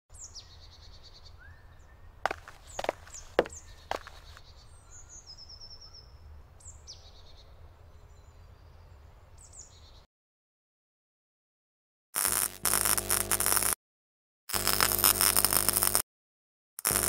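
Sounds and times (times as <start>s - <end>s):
songbirds chirping: 0.1s - 10.1s.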